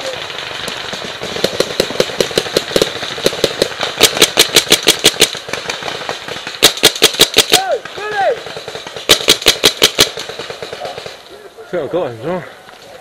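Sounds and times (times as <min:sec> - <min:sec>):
paintball marker firing rapidly: 0:00.8 - 0:11.2.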